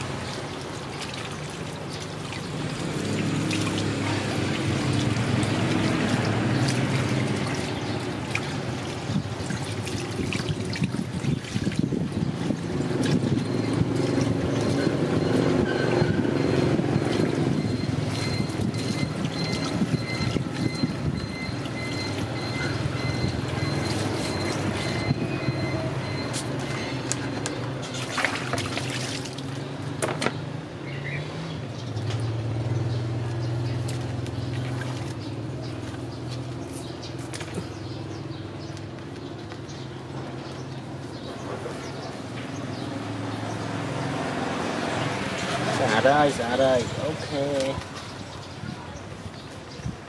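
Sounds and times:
light water splashes: 0.0s - 15.6s, 27.8s - 29.9s, 33.0s - 38.0s.

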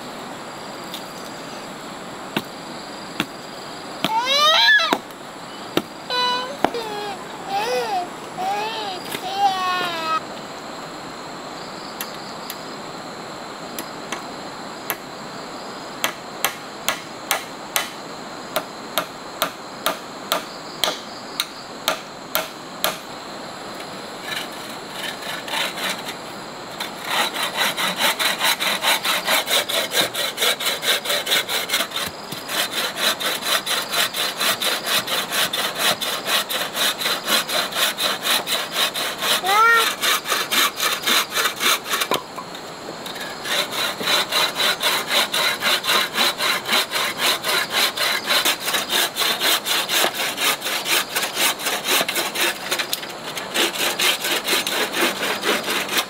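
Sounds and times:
hand saw cutting wood: 24.2s - 26.2s, 26.8s - 42.3s, 43.1s - 56.0s.

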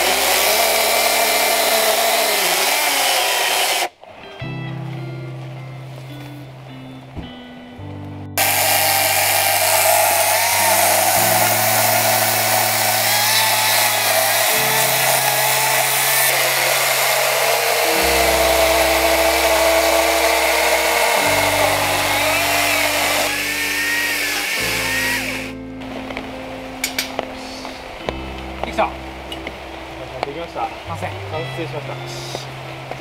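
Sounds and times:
chainsaw cutting log: 0.0s - 4.0s, 8.4s - 25.6s
background music: 3.3s - 33.0s.

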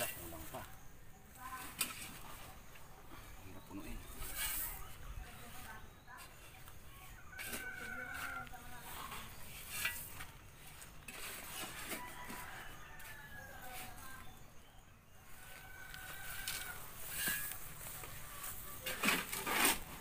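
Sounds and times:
roosters crowing: 7.2s - 9.0s, 11.5s - 14.2s, 15.2s - 18.9s.

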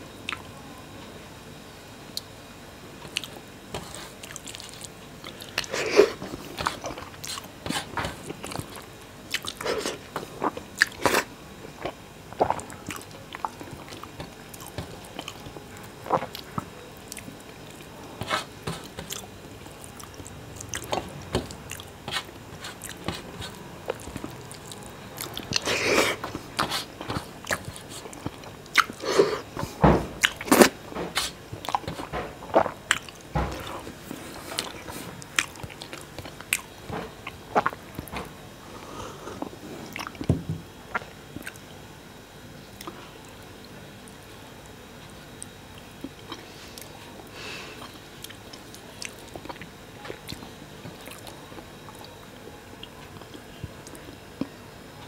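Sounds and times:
wet chewing and lip smacks: 3.1s - 5.7s, 11.8s - 25.7s, 26.3s - 29.0s, 30.2s - 33.7s, 39.9s - 40.3s.

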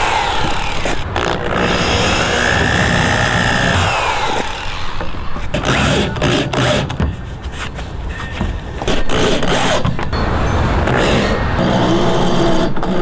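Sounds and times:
drill driving screws: 0.0s - 7.0s.

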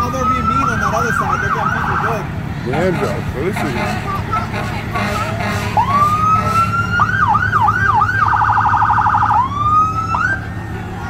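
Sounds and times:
fire truck siren: 0.0s - 11.0s
truck engine rumbling: 0.0s - 11.0s.

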